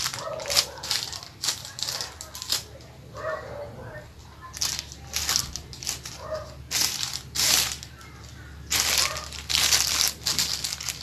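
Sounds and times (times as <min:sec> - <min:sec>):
plastic film crinkling: 0:00.0 - 0:03.0, 0:04.2 - 0:11.0.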